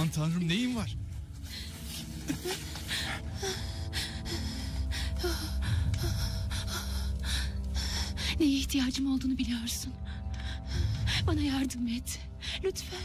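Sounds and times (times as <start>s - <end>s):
sustained background music tones: 0.0s - 13.0s.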